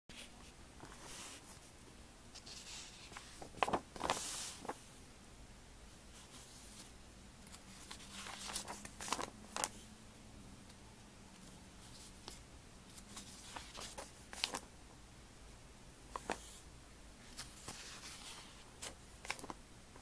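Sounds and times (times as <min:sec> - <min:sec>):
paper pages turning: 0:02.4 - 0:04.8, 0:07.5 - 0:09.8, 0:11.4 - 0:14.7, 0:16.1 - 0:16.6, 0:17.2 - 0:19.6.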